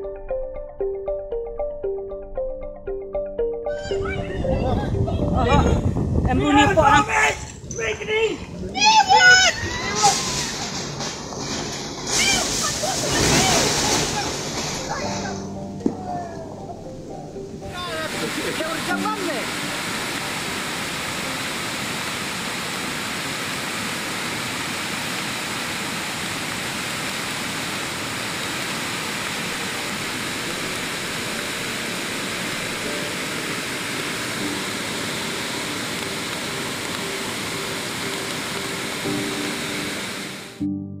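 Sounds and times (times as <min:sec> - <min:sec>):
waterfall rushing: 0:12.0 - 0:40.6.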